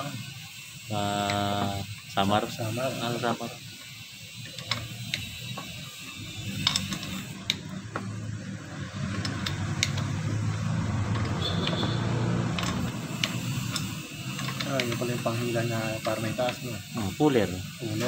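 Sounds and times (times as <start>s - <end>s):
vehicle engine hum: 3.6s - 18.0s
wrench metal clicks: 3.8s - 5.8s, 6.5s - 8.0s, 9.0s - 10.2s, 11.1s - 11.9s, 12.5s - 16.7s.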